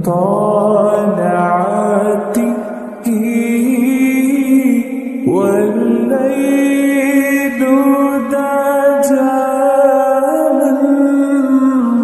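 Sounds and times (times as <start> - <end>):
person singing long notes: 0.0 - 12.0.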